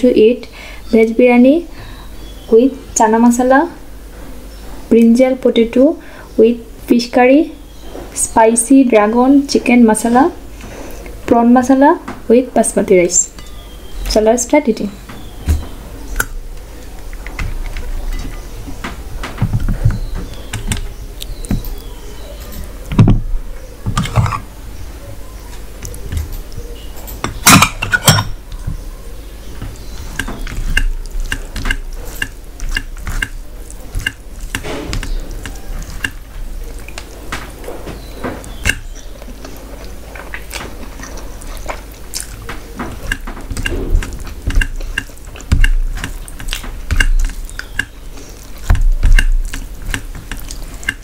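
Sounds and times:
bowls clinking against steel plate: 27.1 - 28.4.

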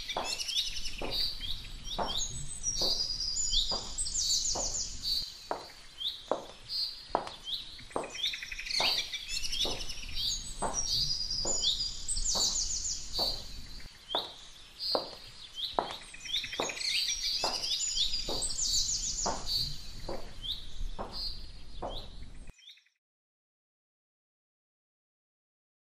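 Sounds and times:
birds chirping and twittering: 0.0 - 22.9.

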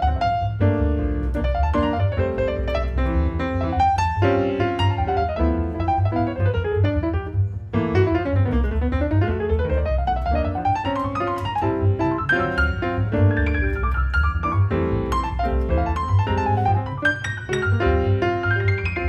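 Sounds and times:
jazz piano: 0.0 - 19.0
plucked double bass: 0.0 - 19.0.

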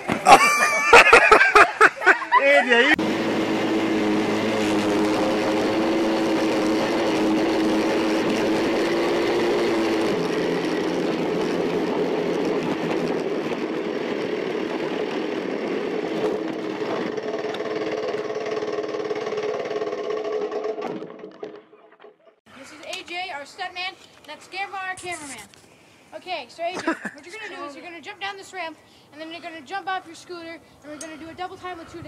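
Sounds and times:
small engine running: 2.9 - 21.8.

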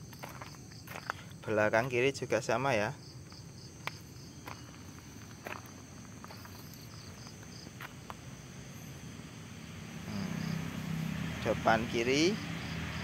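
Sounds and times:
footsteps on gravel: 0.0 - 1.2, 3.3 - 8.2
insect chirping: 0.0 - 13.0.

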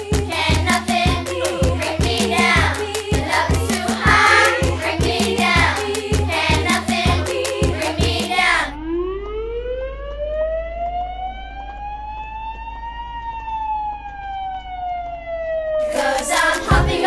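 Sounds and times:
fire engine siren wailing: 8.8 - 16.3.

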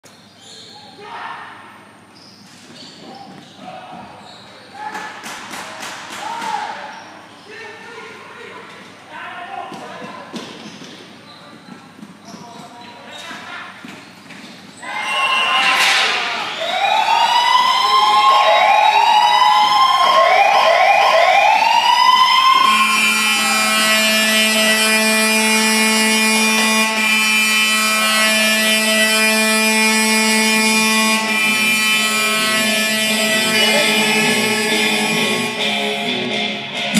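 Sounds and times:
goal siren whooping: 14.9 - 36.1
long steady horn blast: 22.6 - 36.7.

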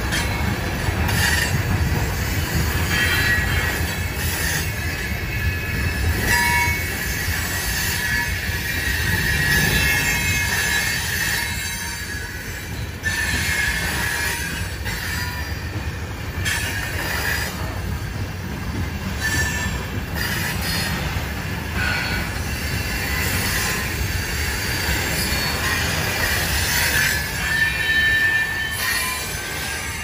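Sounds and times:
train wheels rumbling on rails: 0.0 - 30.0
high-pitched wheel squeal: 21.8 - 30.0.

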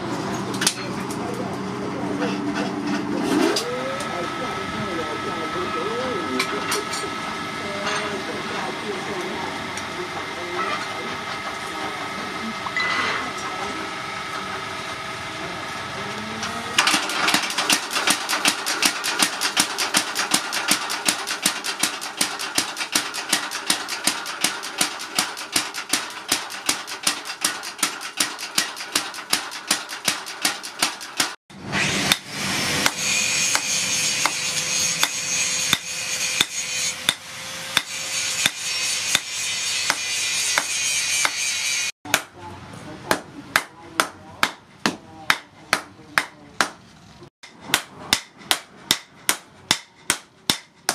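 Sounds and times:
hammer strikes on hot steel: 17.3 - 31.4, 32.0 - 42.3, 43.1 - 46.8, 47.4 - 50.9.

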